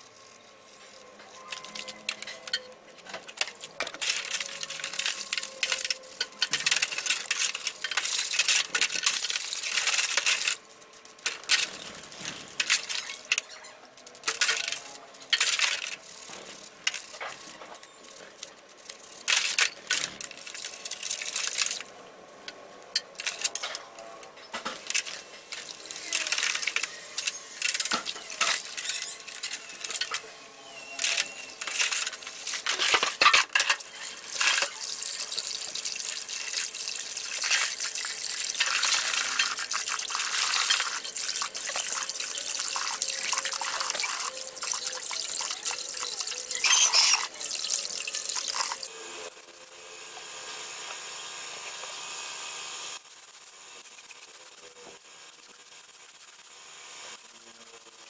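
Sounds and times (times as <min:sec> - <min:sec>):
wire brush scrubbing metal: 0:00.0 - 0:21.8
metal parts clinking on basin: 0:00.2 - 0:21.9, 0:22.9 - 0:30.3, 0:31.0 - 0:48.9.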